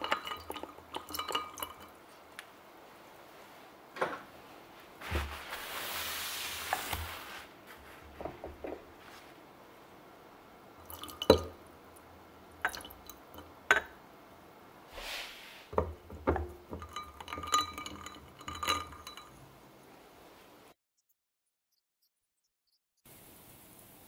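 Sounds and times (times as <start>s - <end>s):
ice and glassware clinking: 0.0s - 2.0s, 10.8s - 11.6s, 12.6s - 14.0s, 15.8s - 19.5s
liquid trickling: 0.0s - 2.1s, 10.6s - 14.5s, 15.7s - 19.6s.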